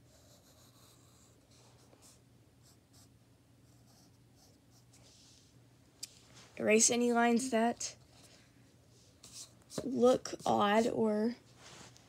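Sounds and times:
pencil scratching on paper: 0.0 - 3.1, 9.0 - 11.0
low steady hum: 0.0 - 12.0.

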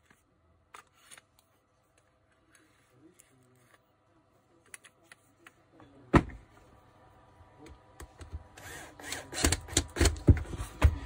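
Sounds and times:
cordless drill driving screw: 8.6 - 10.2.

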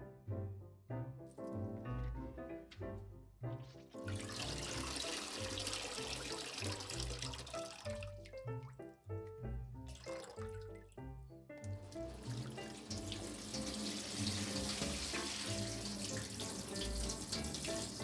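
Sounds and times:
background music: 0.0 - 18.0
water splashing into bowl: 4.0 - 8.7, 9.9 - 11.0, 11.6 - 18.0
water draining through colander: 4.0 - 8.8, 9.8 - 18.0.

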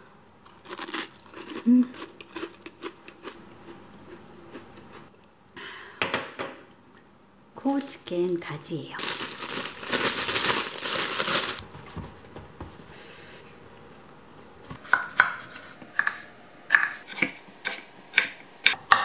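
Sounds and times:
plastic bag crinkling: 0.5 - 1.3, 7.7 - 11.6.

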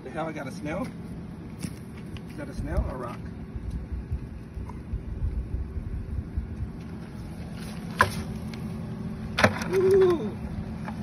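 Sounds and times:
wind rumble on microphone: 2.4 - 7.6.

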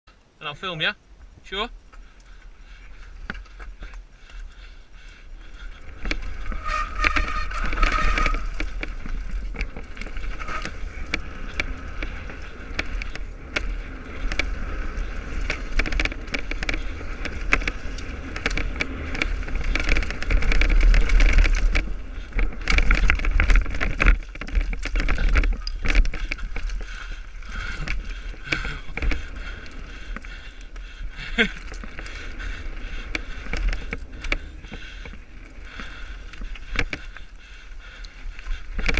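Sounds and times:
wind rumbling on microphone: 0.1 - 38.9
bike rattling and knocking: 1.2 - 38.9
tyres rolling over loose stones: 2.9 - 38.9.

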